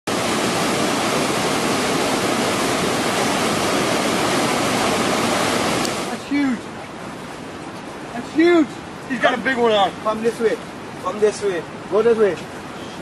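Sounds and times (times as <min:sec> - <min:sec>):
rushing water: 0:00.0 - 0:13.0.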